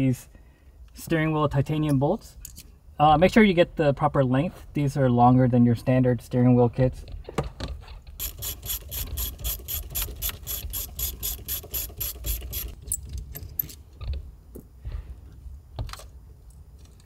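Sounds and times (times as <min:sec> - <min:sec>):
rapid ratchet clicking: 0:08.2 - 0:12.8.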